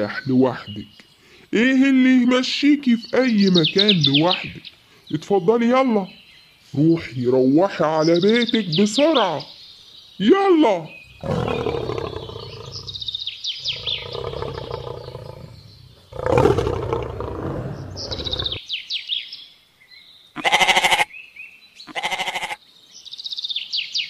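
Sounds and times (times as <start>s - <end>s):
birds chirping: 0.0s - 24.0s
lion roaring: 11.1s - 18.6s
sheep bleating: 20.4s - 21.1s, 21.9s - 22.6s.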